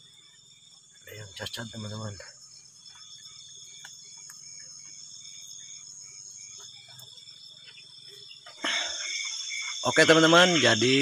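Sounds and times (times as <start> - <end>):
insect chirps: 0.0 - 11.0
insects trilling: 0.0 - 11.0.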